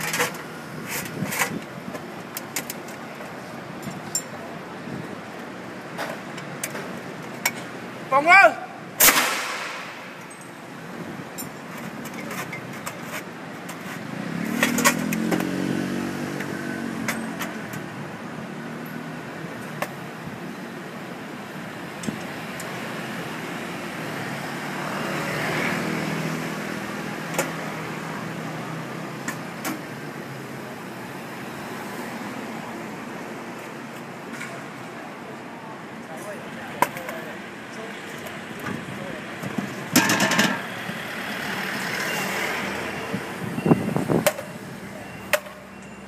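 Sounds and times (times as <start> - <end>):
motor vehicles passing: 0.0 - 46.0.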